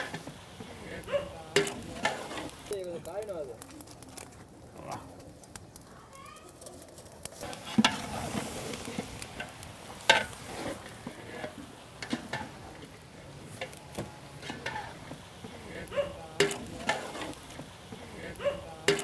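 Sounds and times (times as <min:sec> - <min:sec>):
masala sizzling in a pot: 0:00.0 - 0:19.0
vegetables clattering into a pot: 0:01.5 - 0:02.6, 0:16.4 - 0:17.4
ladle knocking against a pot: 0:16.4 - 0:17.0.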